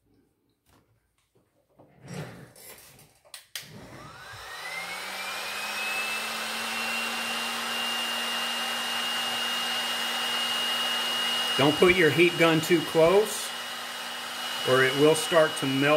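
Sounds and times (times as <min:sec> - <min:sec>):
heat gun fan whining: 0:03.6 - 0:15.9.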